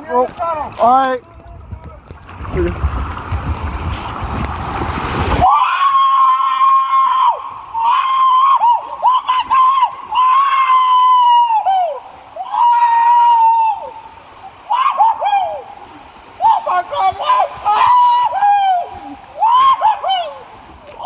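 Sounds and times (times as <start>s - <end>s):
water rushing: 0.0s - 21.0s
person screaming: 5.4s - 13.8s.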